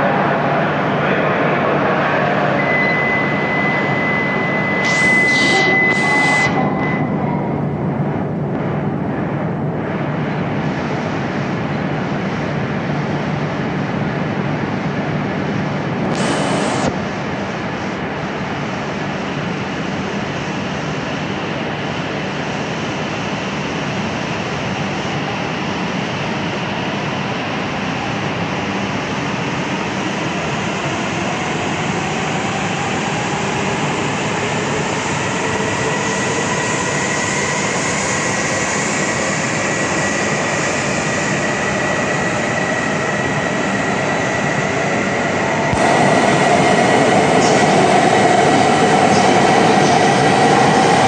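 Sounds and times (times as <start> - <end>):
high steady tone: 2.6 - 7.8
train rolling rumble: 6.6 - 51.0.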